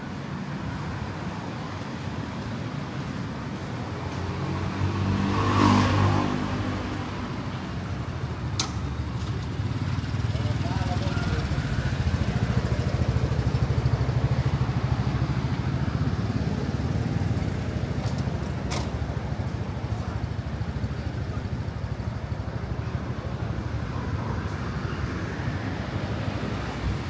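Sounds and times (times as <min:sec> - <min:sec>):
street traffic rumble: 0:00.0 - 0:27.0
sharp click: 0:08.6 - 0:08.8.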